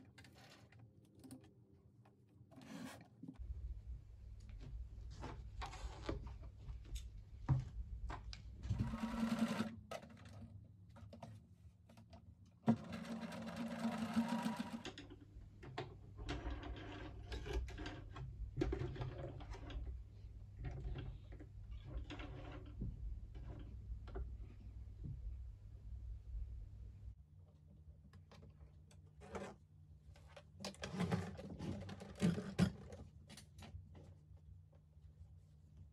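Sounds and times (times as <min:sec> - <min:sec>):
sewing machine running: 0:08.8 - 0:09.8, 0:12.7 - 0:14.9.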